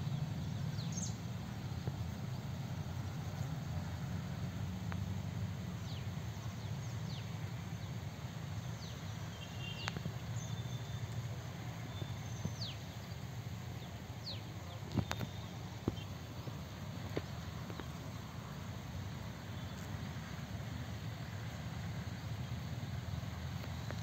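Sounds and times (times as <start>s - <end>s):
birds chirping: 0.0s - 3.9s, 5.7s - 20.1s.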